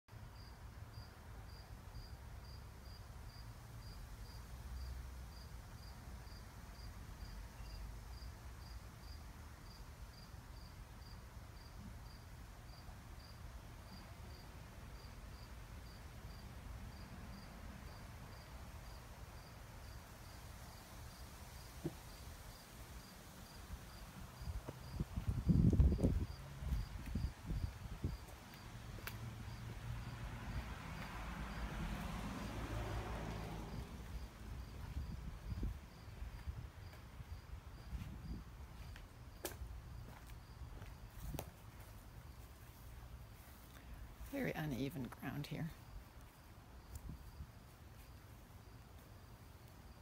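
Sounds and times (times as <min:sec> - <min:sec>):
cricket chirping: 0:00.3 - 0:41.4
wind noise on microphone: 0:23.7 - 0:28.4, 0:33.6 - 0:38.8, 0:46.9 - 0:47.6.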